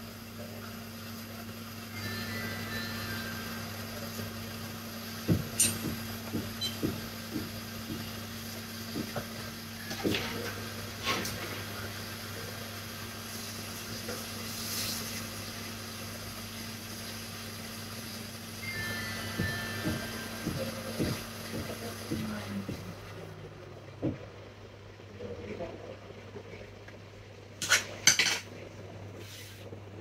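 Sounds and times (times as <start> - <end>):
steady low hum: 18.3 - 30.0.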